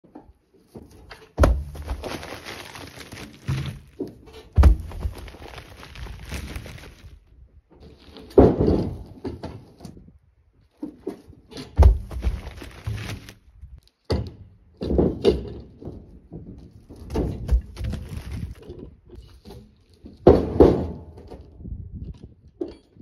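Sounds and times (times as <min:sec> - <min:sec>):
logs thudding on the ground: 0:00.7 - 0:07.2, 0:08.1 - 0:10.0, 0:10.8 - 0:18.8, 0:20.0 - 0:21.4
logs rolling on bark litter: 0:00.8 - 0:07.3, 0:11.9 - 0:13.9, 0:16.7 - 0:18.8.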